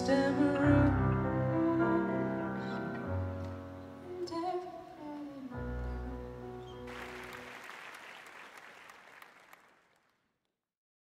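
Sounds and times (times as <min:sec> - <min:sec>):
audience applause: 0:06.9 - 0:10.2.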